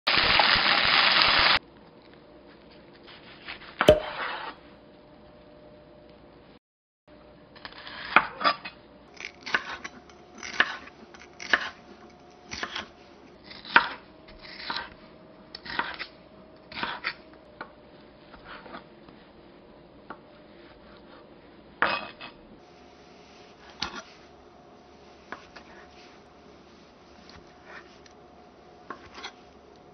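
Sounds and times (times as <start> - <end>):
knife slicing on wooden board: 3.4 - 4.6, 15.6 - 16.1
knife cutting tofu: 9.2 - 11.9, 12.5 - 14.9.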